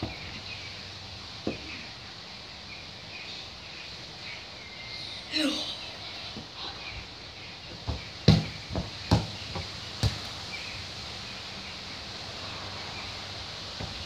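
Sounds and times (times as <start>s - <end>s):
garden background noise: 0.0s - 14.0s
football thuds: 7.8s - 10.3s.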